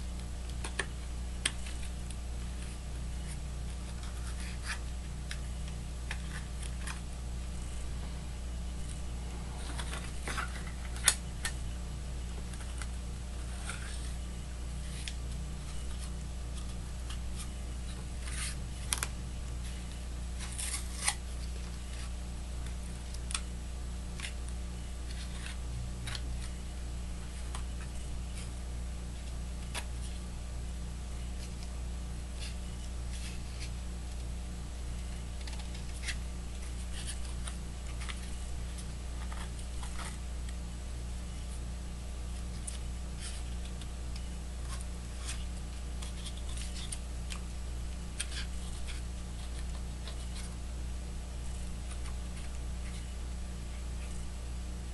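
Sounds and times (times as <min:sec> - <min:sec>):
low hum: 0:00.0 - 0:54.9.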